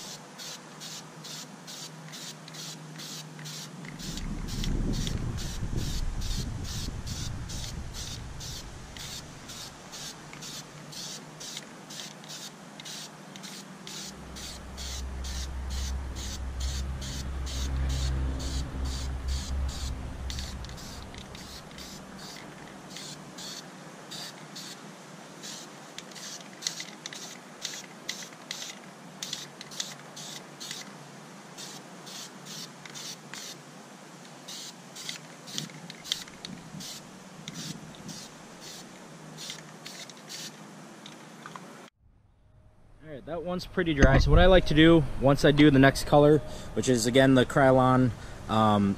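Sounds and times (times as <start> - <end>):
spray paint can hissing: 0.0 - 24.8, 25.4 - 30.9, 31.6 - 33.6, 34.5 - 40.6
low rumble: 3.8 - 9.8, 14.1 - 22.2
high even pulse: 3.8 - 9.9, 13.8 - 22.4.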